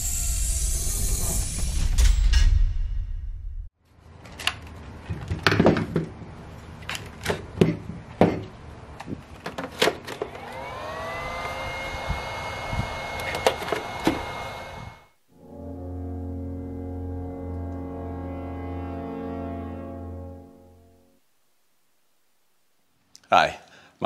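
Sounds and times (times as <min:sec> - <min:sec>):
charger whine: 0:00.0 - 0:01.8, 0:10.2 - 0:15.2.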